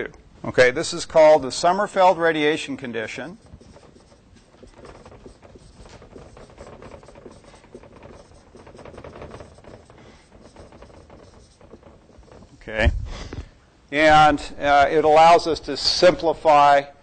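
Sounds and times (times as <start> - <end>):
marker writing on whiteboard: 3.0 - 12.7.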